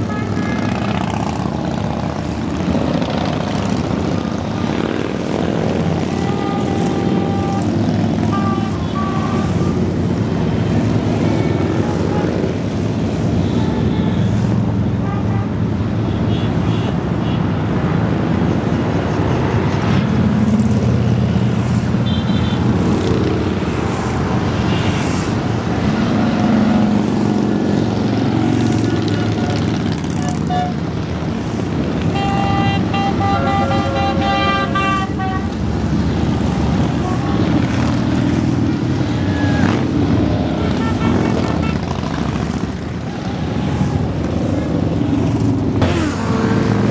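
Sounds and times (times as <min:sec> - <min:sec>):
motorcycles rumbling past: 0:00.6 - 0:12.8, 0:22.8 - 0:32.1, 0:33.0 - 0:46.9
horn sounding: 0:06.0 - 0:09.9, 0:32.0 - 0:35.6, 0:40.5 - 0:42.1.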